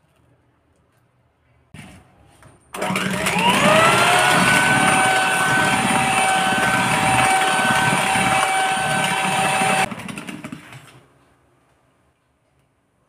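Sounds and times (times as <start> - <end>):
electric hand mixer whining: 2.8 - 10.3.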